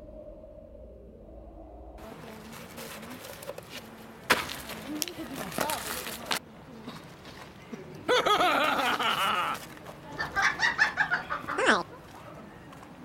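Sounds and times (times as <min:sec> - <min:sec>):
chicken clucking and squawking: 0:10.2 - 0:12.0.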